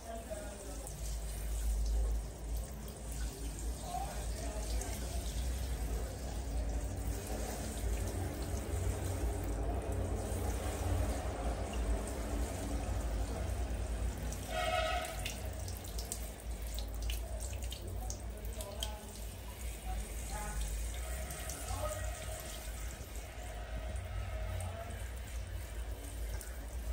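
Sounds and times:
shower spraying water: 0:00.0 - 0:26.9
water splashing on tiled floor: 0:00.0 - 0:26.9.

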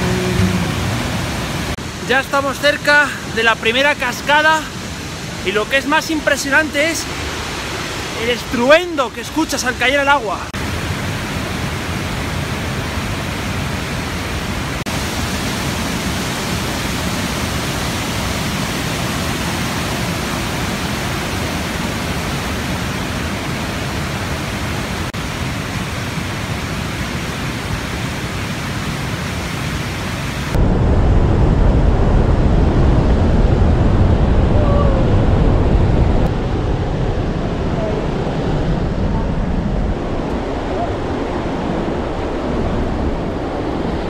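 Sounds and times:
deep water rumble: 0:00.0 - 0:01.8, 0:30.5 - 0:44.0
rushing water roar: 0:00.0 - 0:44.0.

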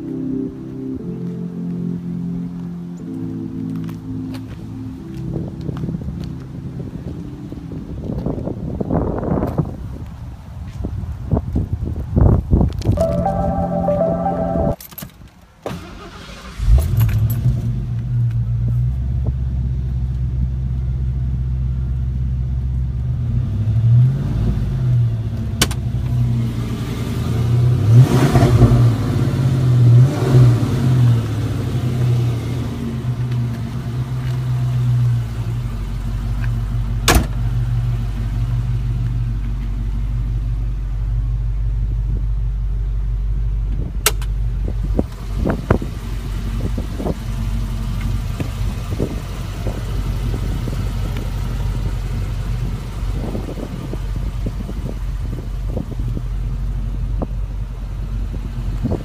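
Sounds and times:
car engine starting and idling: 0:15.6 - 0:59.0.

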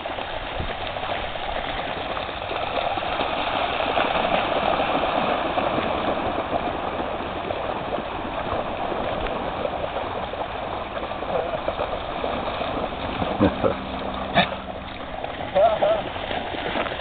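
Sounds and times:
dogs splashing through water: 0:00.0 - 0:17.0.

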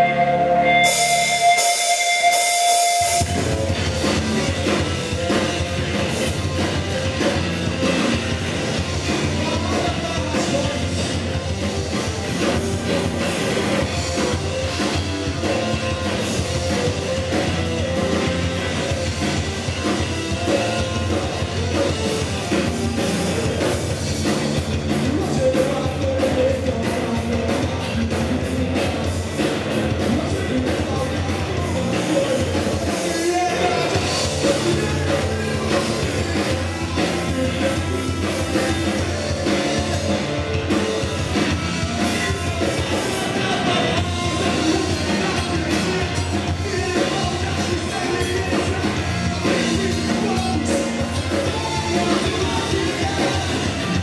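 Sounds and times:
bass guitar: 0:00.0 - 0:54.0
distorted electric guitars: 0:00.0 - 0:54.0
drum kit: 0:00.0 - 0:54.0
person singing into microphone: 0:42.0 - 0:54.0.

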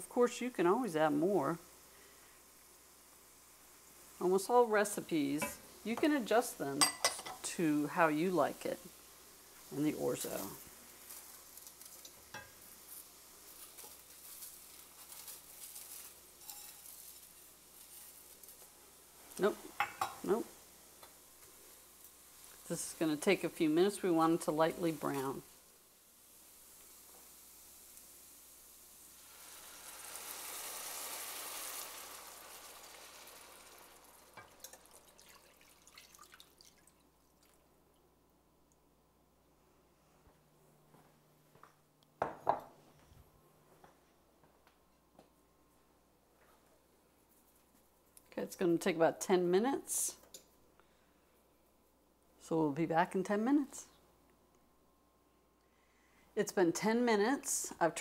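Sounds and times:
faint sizzle of sauteing: 0:00.0 - 0:54.6, 0:55.2 - 0:58.0
dry pasta pattering into skillet: 0:08.4 - 0:37.7
drips and small splashes: 0:34.4 - 0:38.0.

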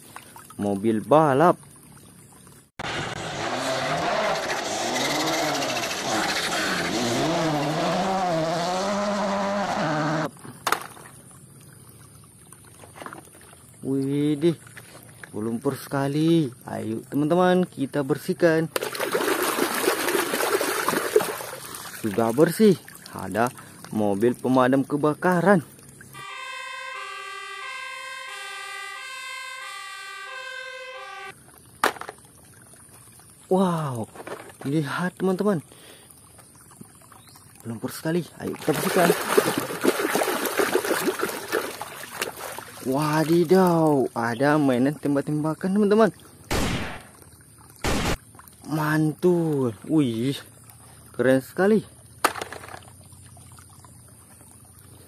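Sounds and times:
rally car engine revving: 0:02.8 - 0:10.3
two-tone fire engine siren: 0:26.2 - 0:31.4.

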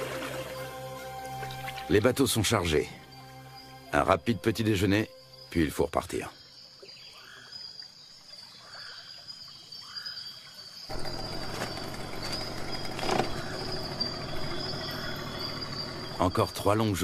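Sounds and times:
bird chirps: 0:09.8 - 0:17.0
high-pitched insect drone: 0:10.8 - 0:17.0.

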